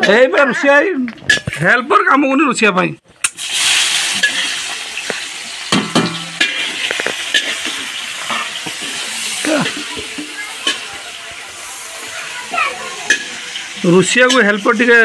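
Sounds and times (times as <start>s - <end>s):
onions sizzling in hot oil: 3.2s - 15.0s
metal spatula scraping wok: 3.4s - 14.8s.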